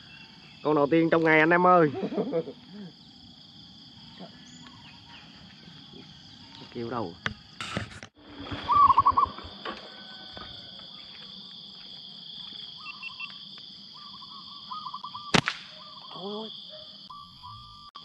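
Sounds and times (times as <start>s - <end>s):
insects buzzing: 0.0s - 18.0s
small birds chirping: 4.0s - 7.5s, 12.7s - 17.8s
slingshot snap: 15.3s - 15.8s.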